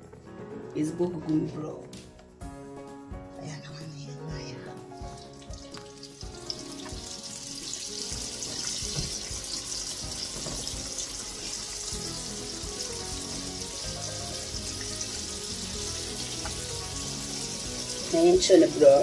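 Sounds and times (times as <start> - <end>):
background music: 0.0 - 19.0
deep frying sizzle: 5.0 - 19.0.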